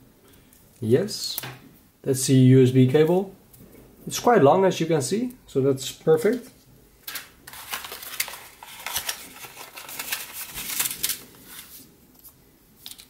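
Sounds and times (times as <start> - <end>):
packaging rustling and crinkling: 7.0 - 13.0.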